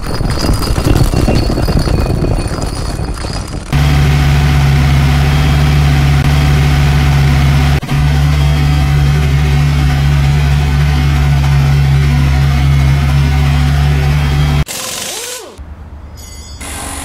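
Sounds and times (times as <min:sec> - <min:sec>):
rough engine rumble: 0:00.0 - 0:14.7
engine idling drone: 0:03.7 - 0:14.7.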